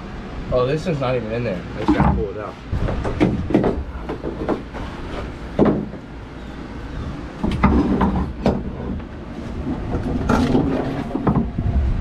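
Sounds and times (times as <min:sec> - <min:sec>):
knocks against fiberglass hull: 0:01.8 - 0:06.1, 0:07.4 - 0:11.6
low rumble: 0:09.0 - 0:12.0.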